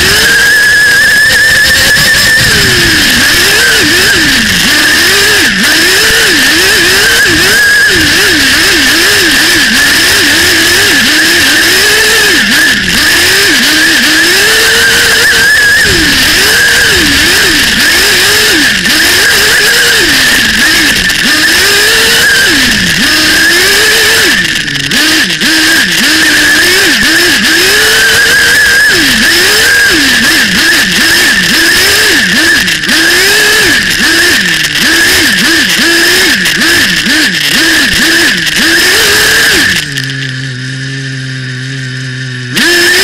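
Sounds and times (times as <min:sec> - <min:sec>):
rc car engine revving: 0:00.0 - 0:43.0.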